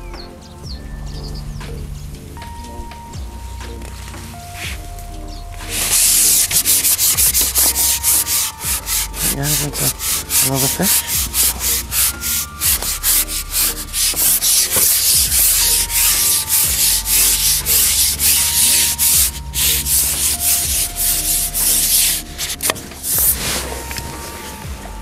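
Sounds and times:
fishing pole rubbing on microphone: 0:05.6 - 0:24.3.

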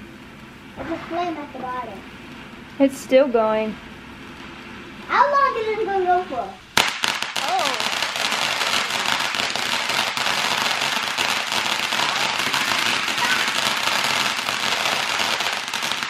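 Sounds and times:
firework crackling sparks: 0:05.8 - 0:16.0.

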